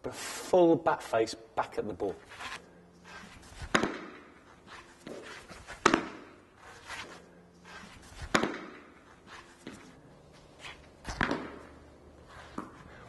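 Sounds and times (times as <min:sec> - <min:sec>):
cricket bat striking ball: 0:03.6 - 0:04.3, 0:05.8 - 0:06.4, 0:08.2 - 0:09.0, 0:11.1 - 0:11.8.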